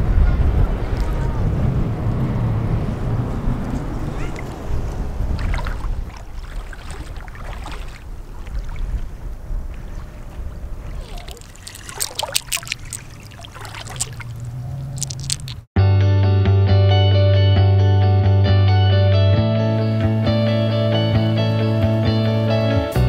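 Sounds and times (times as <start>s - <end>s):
wind buffeting microphone: 0.0s - 15.7s
water splashing around wading legs: 4.1s - 15.7s.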